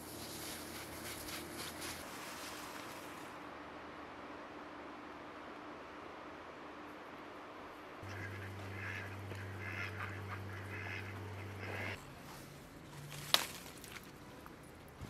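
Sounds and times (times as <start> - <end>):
low steady hum: 0.0 - 15.0
ducks quacking: 8.0 - 12.0.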